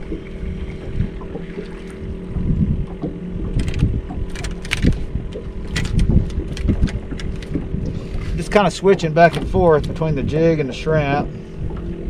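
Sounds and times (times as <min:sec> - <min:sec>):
water lapping against boat hull: 0:00.0 - 0:12.0
wind buffeting microphone: 0:00.0 - 0:12.0.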